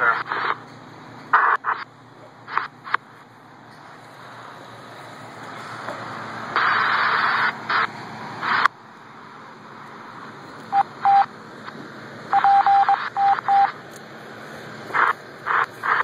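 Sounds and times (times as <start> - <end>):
two-way radio beeps: 0.0 - 0.6, 1.3 - 1.9, 10.7 - 11.3, 12.3 - 13.8, 14.9 - 16.0
radio static bursts: 0.0 - 0.7, 1.3 - 3.2, 5.6 - 8.7, 12.3 - 13.8, 14.8 - 16.0.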